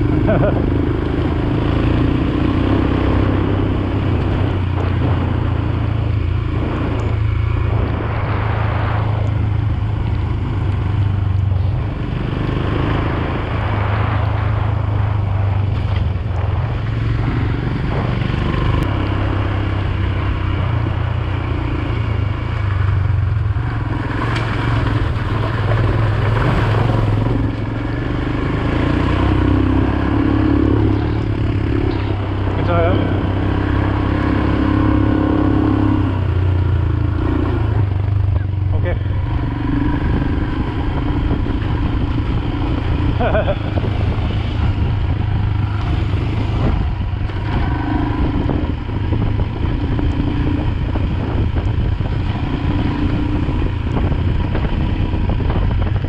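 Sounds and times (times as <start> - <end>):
motorcycle engine running: 0.0 - 56.0
wind rushing: 1.7 - 10.7, 11.8 - 56.0.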